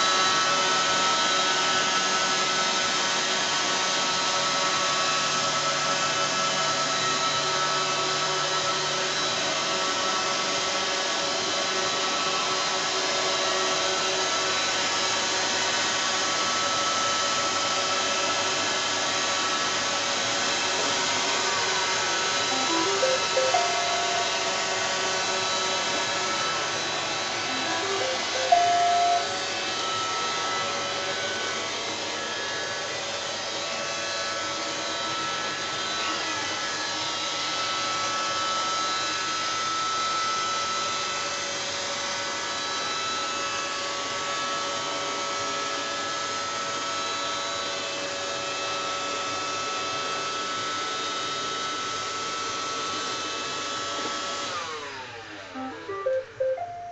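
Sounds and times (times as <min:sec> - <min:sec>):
short beep: 0:22.5 - 0:24.6, 0:27.5 - 0:29.3, 0:55.6 - 0:56.9.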